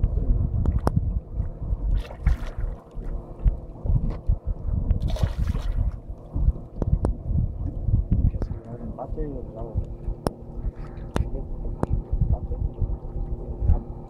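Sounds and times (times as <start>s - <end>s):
faint steady hum: 0.0s - 14.0s
wind buffeting microphone: 0.0s - 14.0s
fish splashing in water: 5.0s - 6.0s.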